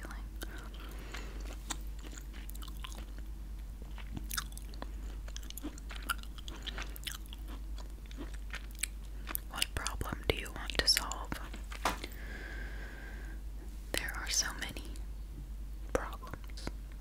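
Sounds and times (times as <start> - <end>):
gum chewing mouth sounds: 0.0 - 11.7.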